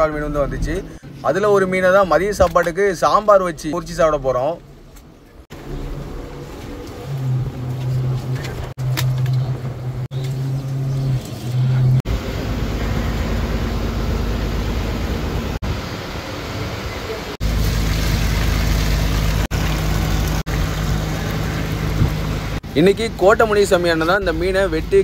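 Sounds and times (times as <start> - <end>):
boat engine humming: 0.0 - 25.0
wind: 0.0 - 25.0
water gushing from hose into bucket: 17.4 - 22.0.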